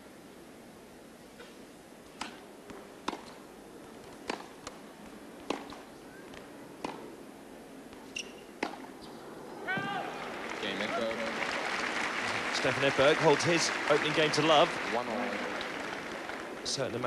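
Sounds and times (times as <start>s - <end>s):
racket striking tennis ball: 2.2s - 3.4s, 4.2s - 4.8s, 5.4s - 5.9s, 6.8s - 7.1s, 8.2s - 8.9s.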